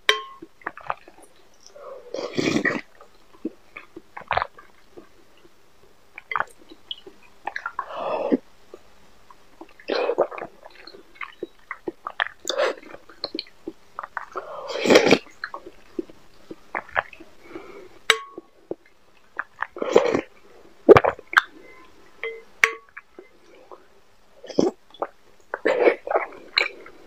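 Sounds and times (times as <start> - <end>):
spoon clinking on glass bowl: 0.1 - 0.4
wet slurping and chewing: 24.4 - 26.9.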